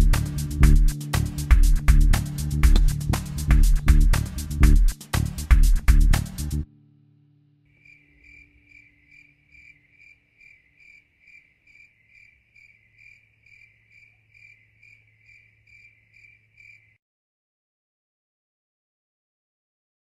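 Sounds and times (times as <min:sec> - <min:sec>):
music: 0:00.0 - 0:08.7
cricket chirping: 0:07.7 - 0:17.0.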